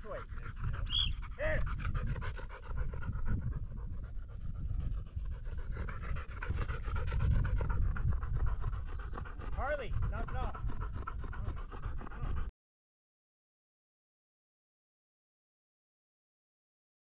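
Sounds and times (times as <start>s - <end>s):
dog panting: 0.0s - 12.5s.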